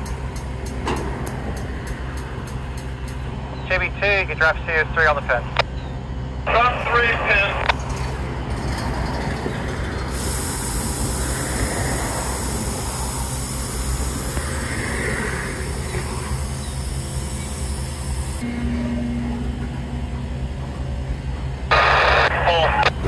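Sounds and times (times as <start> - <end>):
freight train low rumble: 0.0 - 23.0
high steady hiss: 10.1 - 18.4.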